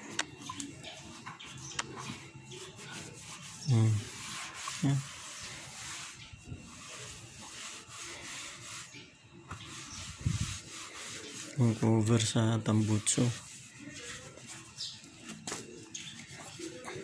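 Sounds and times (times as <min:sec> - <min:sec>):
cloth rag wiping metal: 0:02.1 - 0:15.6.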